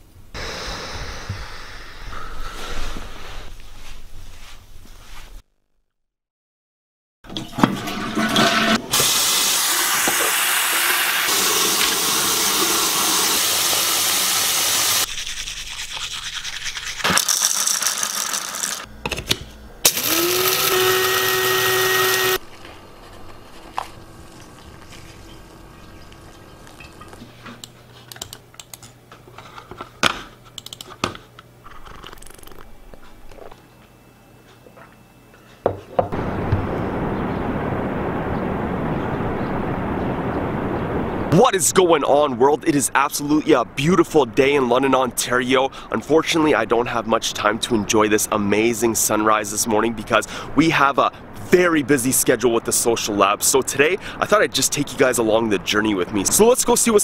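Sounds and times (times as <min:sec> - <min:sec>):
electric coffee grinder whirring: 0:17.2 - 0:18.9, 0:19.8 - 0:22.4
scattered clicks and taps: 0:30.6 - 0:31.1
steady rushing noise: 0:36.1 - 0:42.4.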